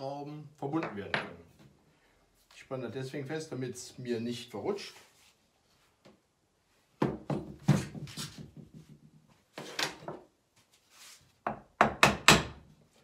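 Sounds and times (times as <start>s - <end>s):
knocks and thuds on wooden workbench: 7.0s - 9.1s, 11.4s - 12.6s.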